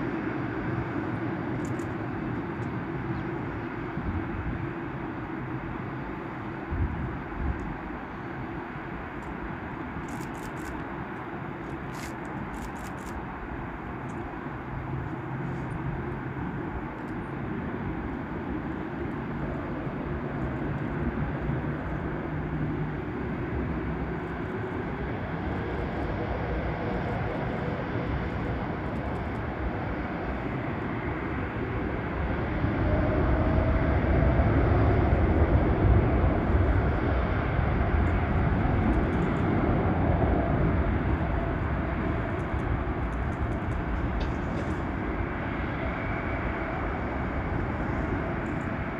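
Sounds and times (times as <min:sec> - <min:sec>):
jet engines rumbling: 0:00.0 - 0:48.9
rising engine whine: 0:14.2 - 0:48.9.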